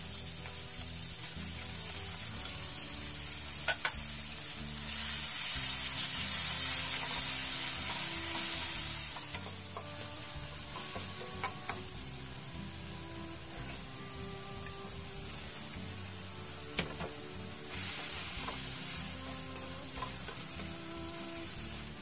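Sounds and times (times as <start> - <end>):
food sizzling in hot oil: 0.0 - 22.0
spatula scraping and tapping wok: 3.6 - 12.1, 16.8 - 22.0.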